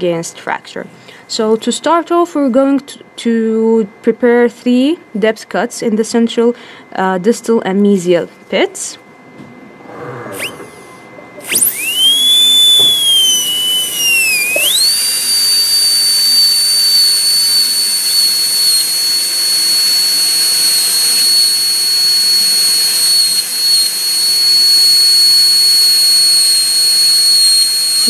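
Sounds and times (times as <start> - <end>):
dental drill whining: 10.4 - 10.7, 11.4 - 28.0
air hiss: 11.5 - 28.0.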